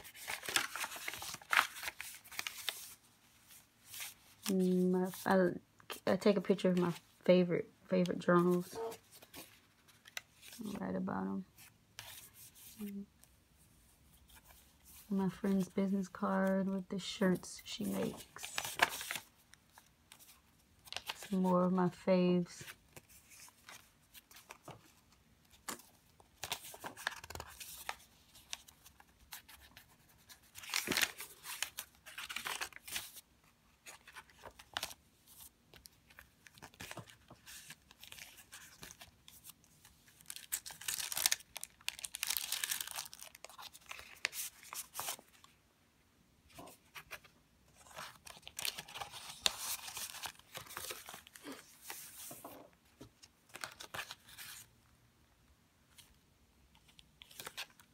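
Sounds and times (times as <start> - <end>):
paper pages rustling: 0.0 - 5.2, 8.4 - 10.8, 11.6 - 13.0, 17.8 - 21.4, 22.6 - 45.6, 46.5 - 54.7, 56.8 - 57.9.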